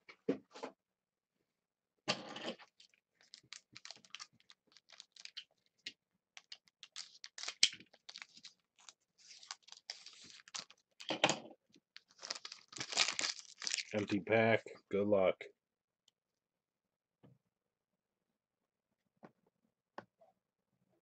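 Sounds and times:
wrapper crinkling and scratching: 0:02.5 - 0:11.2, 0:11.8 - 0:14.1
wrapper rustle: 0:02.6 - 0:05.6, 0:06.4 - 0:11.1, 0:12.0 - 0:14.0.

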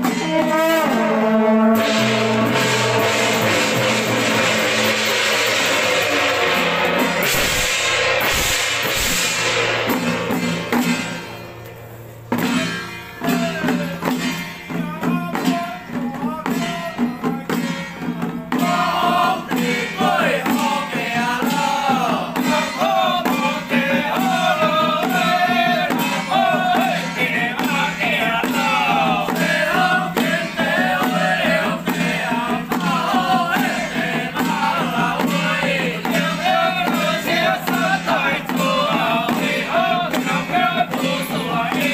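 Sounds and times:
gongs and hand drums beating: 0:00.0 - 0:41.9
group chanting: 0:01.7 - 0:07.3, 0:18.2 - 0:41.9.

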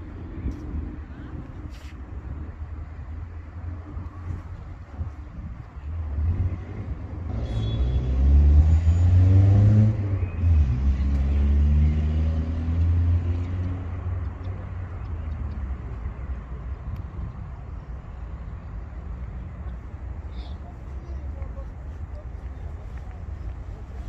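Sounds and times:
car passing by: 0:06.1 - 0:14.2.

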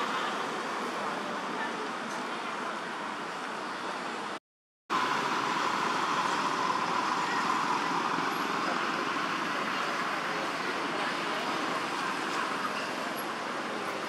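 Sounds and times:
outdoor background drone: 0:04.9 - 0:14.0.

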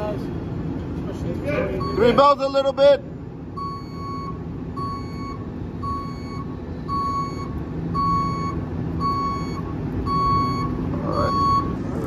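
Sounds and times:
truck engine running: 0:00.0 - 0:12.0
reversing alarm beeping: 0:01.6 - 0:02.8, 0:03.5 - 0:12.0.

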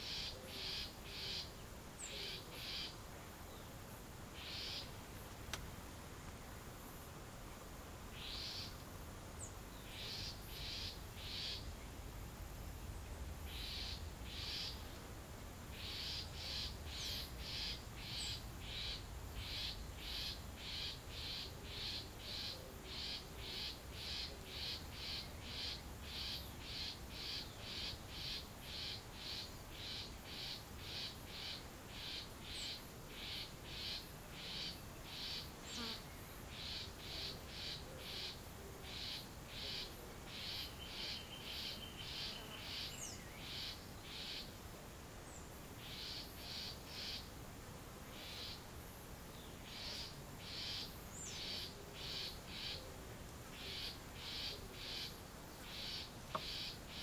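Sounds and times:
raspy repeating calls: 0:00.0 - 0:03.0, 0:15.7 - 0:35.5, 0:53.6 - 0:57.0.

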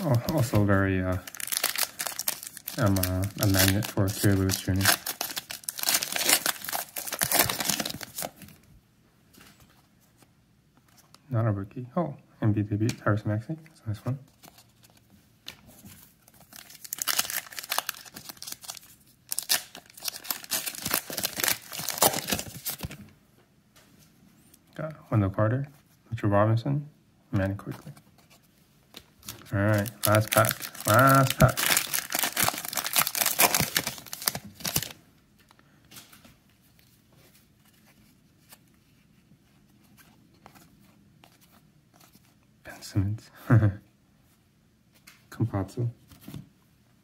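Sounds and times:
wrapper tearing and crinkling: 0:01.2 - 0:08.3, 0:16.4 - 0:22.9, 0:29.2 - 0:35.0.

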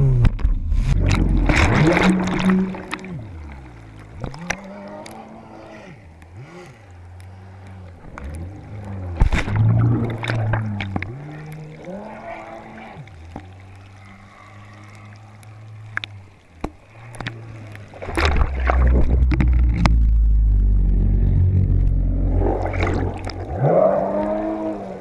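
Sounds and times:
muffled jet ski engine: 0:00.0 - 0:25.0
water sloshing over camera: 0:00.0 - 0:25.0
jet ski passing by: 0:21.1 - 0:25.0.

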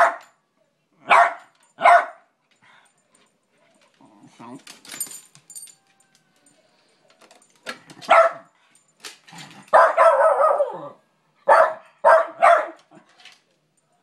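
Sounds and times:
dog barking: 0:00.0 - 0:00.3, 0:01.0 - 0:02.3, 0:08.1 - 0:08.5, 0:09.7 - 0:13.0.

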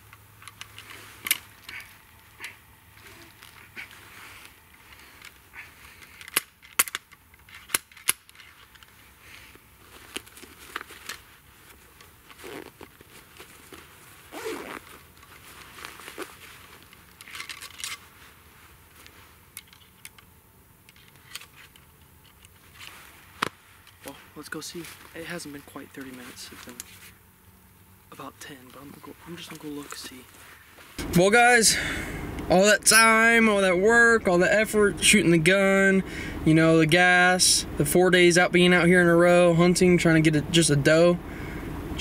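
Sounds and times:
clothing and pouch rustling: 0:00.0 - 0:27.3, 0:28.0 - 0:31.1.

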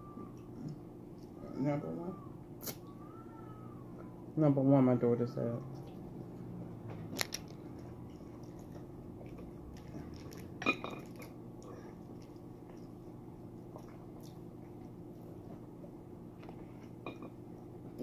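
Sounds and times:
steady low hum: 0:00.0 - 0:18.0
person chewing food: 0:05.6 - 0:17.8.

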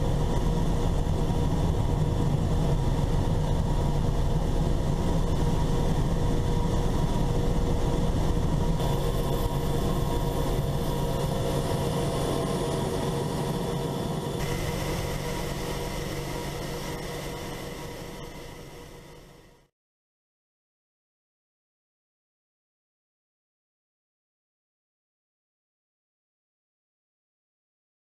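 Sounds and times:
helicopter engine and rotor drone: 0:00.0 - 0:19.7.

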